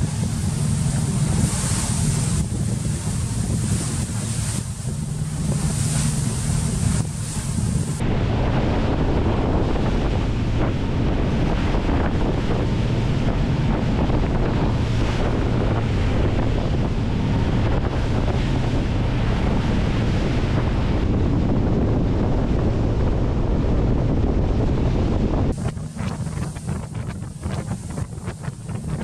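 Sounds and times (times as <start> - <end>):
boat engines droning: 0.0 - 29.0
sea water rushing past hull: 0.0 - 29.0
wind buffeting microphone: 0.0 - 29.0.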